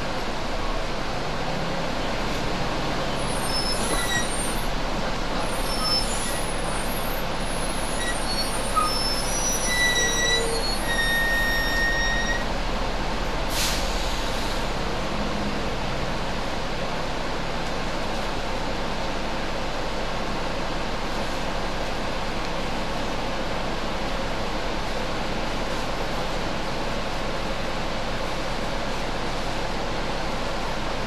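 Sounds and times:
bus engine and road noise: 0.0s - 31.0s
high squeaks and whistles: 3.3s - 4.6s, 8.0s - 12.4s
air brake hiss: 13.5s - 14.7s.

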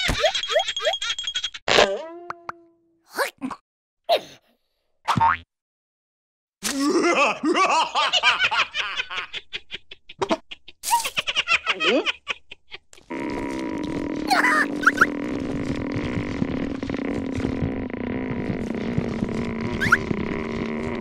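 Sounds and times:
cartoon characters laughing: 0.0s - 1.5s, 7.0s - 13.1s.

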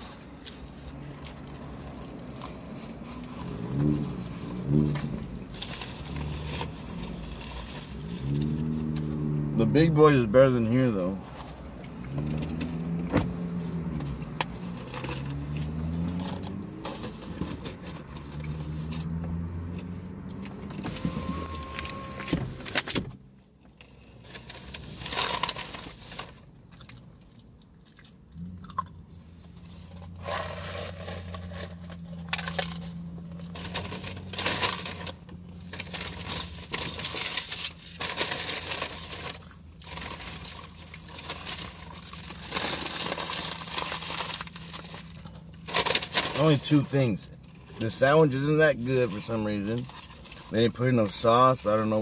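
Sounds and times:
food wrappers rustling: 0.0s - 9.0s, 29.4s - 51.6s.

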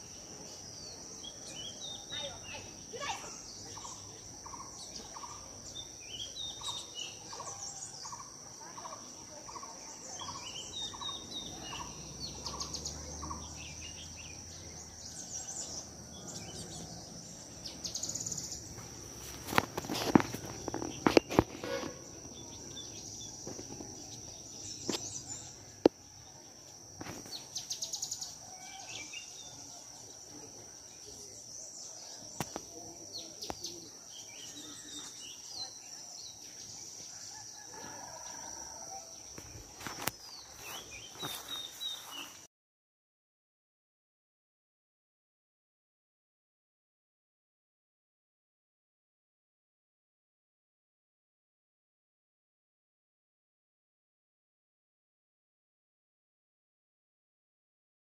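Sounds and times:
birds chirping: 0.0s - 42.5s
high insect drone: 0.0s - 42.5s.

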